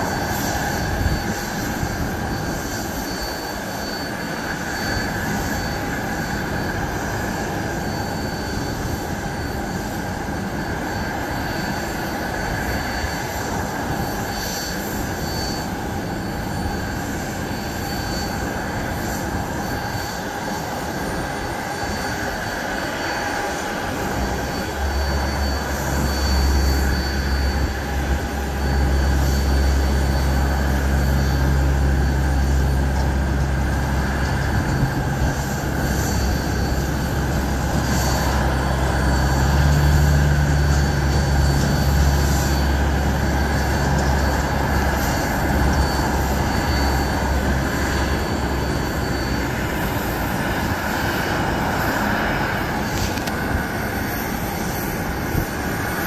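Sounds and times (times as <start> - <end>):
high steady whine: 0.0 - 56.0
low engine drone: 20.6 - 56.0.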